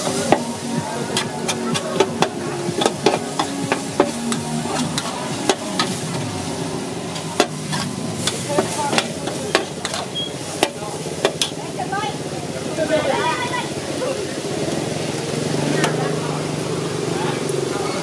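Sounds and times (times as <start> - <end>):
food sizzling: 0.0 - 18.0
metal spatula clacking on pan: 7.4 - 11.6.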